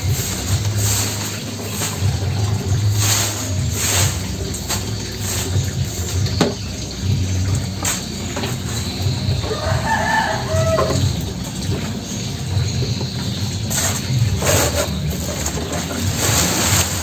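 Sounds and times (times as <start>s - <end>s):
rooster crowing: 9.4s - 11.2s.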